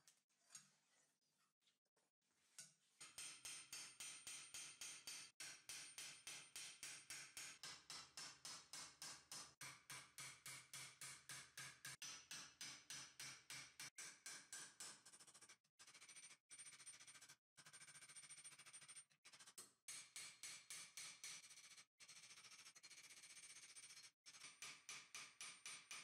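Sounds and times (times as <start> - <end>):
hammer tapping steel plate: 3.0 - 15.0, 24.3 - 26.0.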